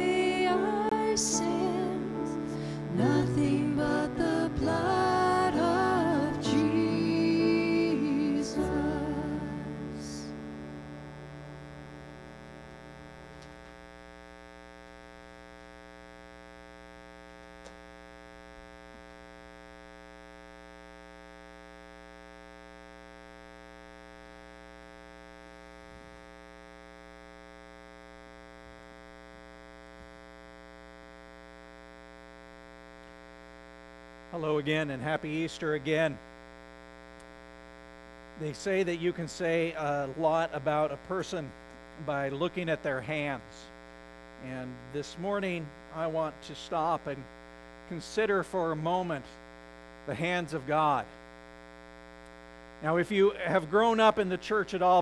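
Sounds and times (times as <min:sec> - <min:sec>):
person singing: 0:00.0 - 0:11.0
guitar and keyboard chords: 0:00.0 - 0:13.5
electrical mains hum: 0:00.0 - 0:55.0.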